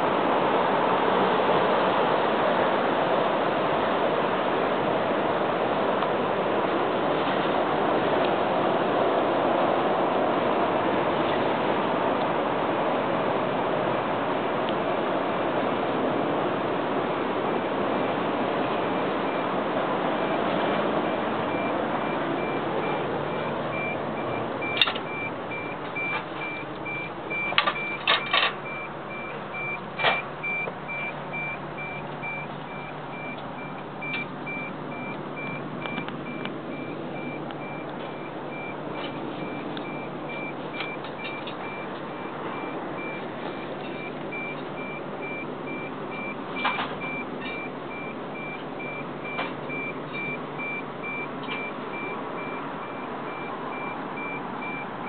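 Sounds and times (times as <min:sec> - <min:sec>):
high electronic beeping: 0:21.1 - 0:54.9.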